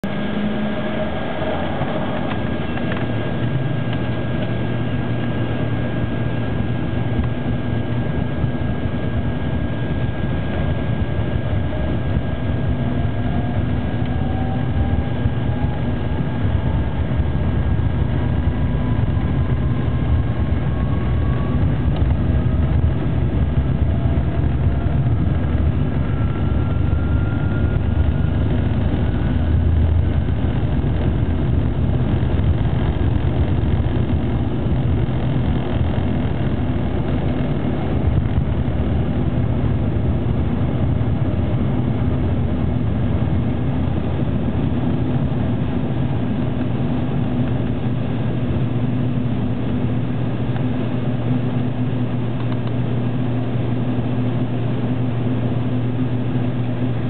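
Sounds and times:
engine whine rising in pitch: 0:00.0 - 0:57.0
jet engines rumbling in cabin: 0:00.0 - 0:57.0.

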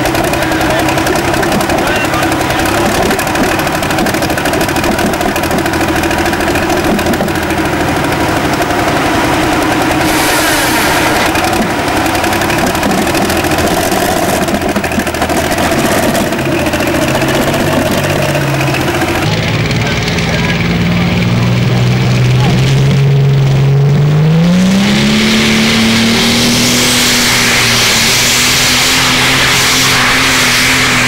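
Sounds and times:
diesel engine idling: 0:00.0 - 0:31.0
burst of hiss: 0:10.0 - 0:11.3, 0:25.6 - 0:31.0.

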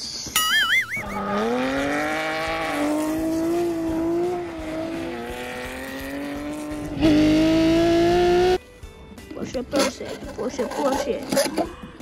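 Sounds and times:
race car engine drone: 0:01.0 - 0:08.6.

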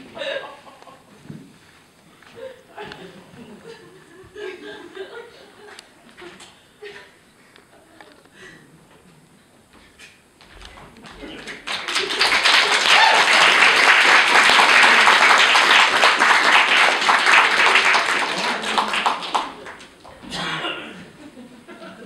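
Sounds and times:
audience applauding: 0:10.7 - 0:20.2.

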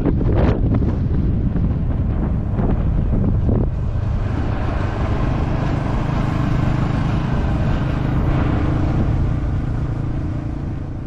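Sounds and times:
motorcycle engine running: 0:00.0 - 0:11.0
wind rushing over microphone: 0:00.0 - 0:11.0.

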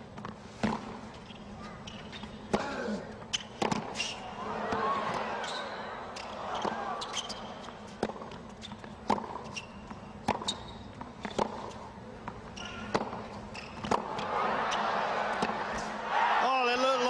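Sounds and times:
shoe squeaks: 0:01.1 - 0:15.0
crowd noise: 0:01.5 - 0:08.3, 0:12.0 - 0:17.0
tennis ball racket hits: 0:01.6 - 0:16.1.

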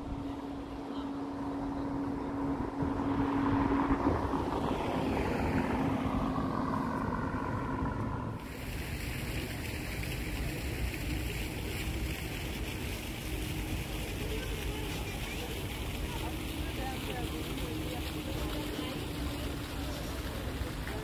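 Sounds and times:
wind on microphone: 0:00.0 - 0:09.9
engine hum: 0:00.0 - 0:21.0.

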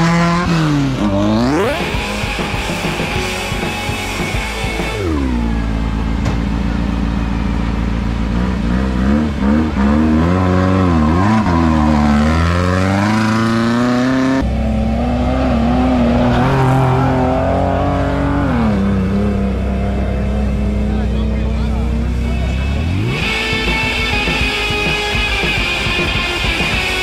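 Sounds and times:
race engine revving: 0:00.0 - 0:27.0
steady engine note: 0:00.0 - 0:27.0.

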